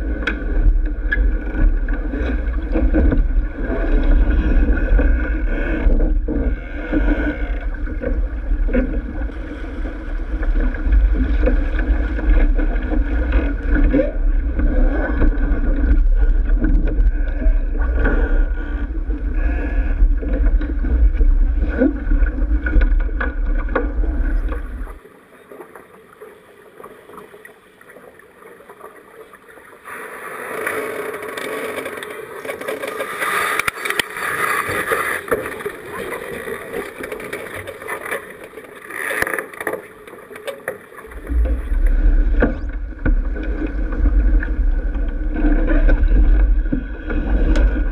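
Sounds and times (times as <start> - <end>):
boat knocks: 0.0 - 25.0, 39.2 - 47.9
rushing water: 0.0 - 47.9
wind buffeting microphone: 41.1 - 47.9.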